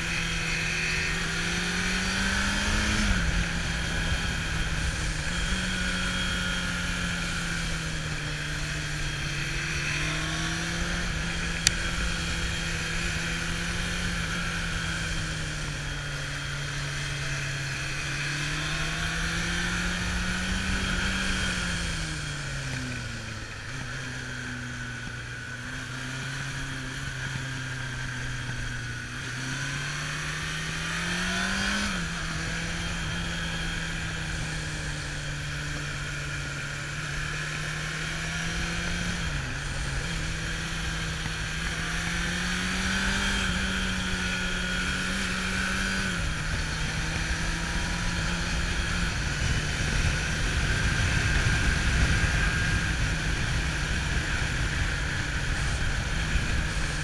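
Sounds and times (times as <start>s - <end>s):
motorcycle engine revving: 0.0s - 57.0s
wind rushing over microphone: 37.8s - 57.0s.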